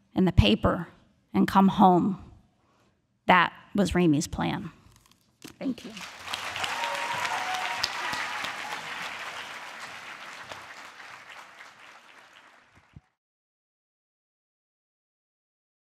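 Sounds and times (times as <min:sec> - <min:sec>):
audience applauding: 0:05.7 - 0:13.2.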